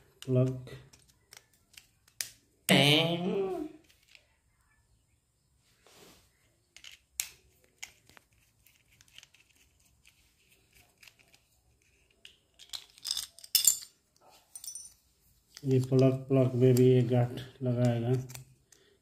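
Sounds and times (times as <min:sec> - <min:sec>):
small plastic clicks and scrapes: 0:06.8 - 0:12.6.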